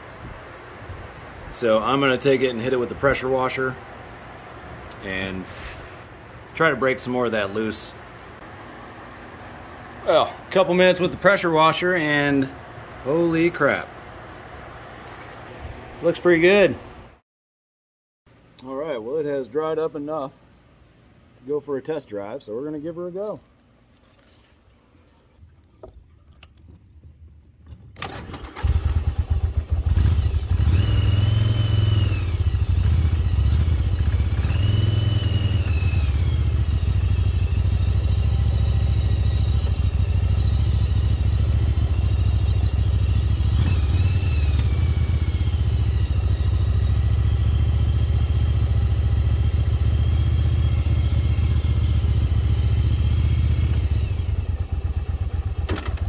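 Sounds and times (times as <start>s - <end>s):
motorcycle engine starting and running: 25.8s - 56.0s
motorcycle throttle blips: 25.8s - 56.0s.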